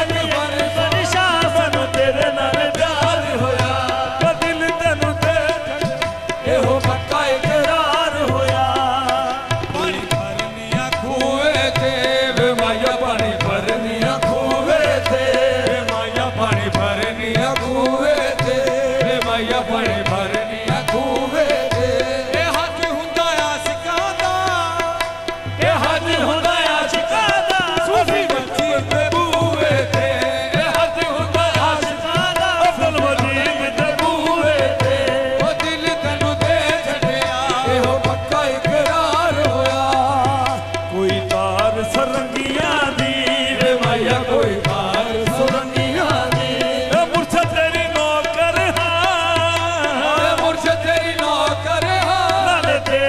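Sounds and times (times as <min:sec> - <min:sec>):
harmonium drone: 0:00.0 - 0:53.0
male voices singing: 0:00.0 - 0:53.0
tabla beat: 0:00.0 - 0:53.0.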